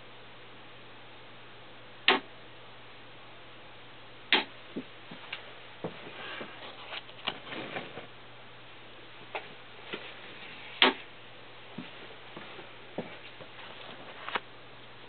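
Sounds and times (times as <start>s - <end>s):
faint low hum: 0.0s - 15.0s
loud sharp clicks: 2.1s - 2.3s, 4.3s - 4.5s.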